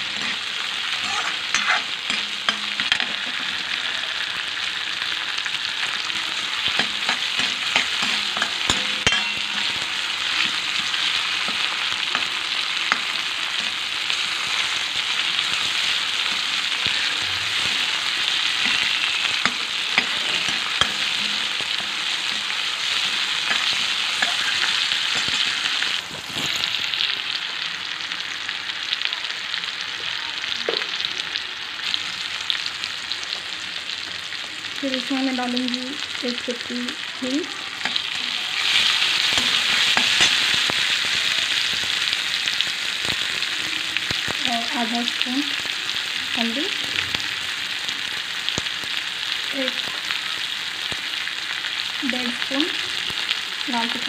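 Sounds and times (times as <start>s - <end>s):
steel spoon scraping pan: 0.0s - 3.9s, 5.8s - 14.7s, 15.4s - 26.7s, 37.8s - 40.9s
tomatoes sizzling in hot oil: 0.0s - 54.0s.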